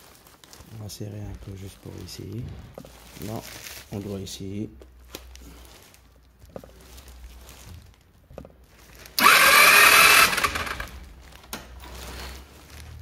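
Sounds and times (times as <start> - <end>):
scooter electric starter cranking: 9.2 - 11.0.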